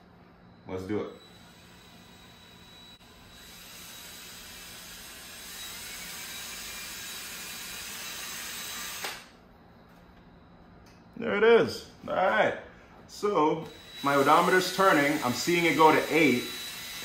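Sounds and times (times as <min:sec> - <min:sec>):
cordless drill running: 0:01.1 - 0:09.3, 0:13.6 - 0:17.0
drill stopping click: 0:08.9 - 0:09.3.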